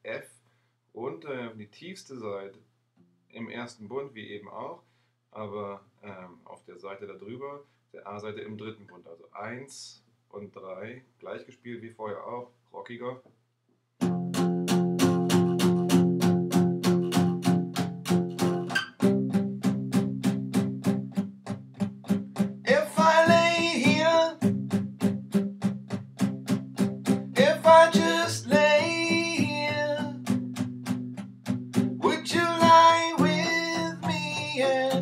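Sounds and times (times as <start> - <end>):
acoustic guitar strumming: 14.0 - 35.0
man singing: 22.6 - 24.5, 27.3 - 30.3, 32.0 - 35.0.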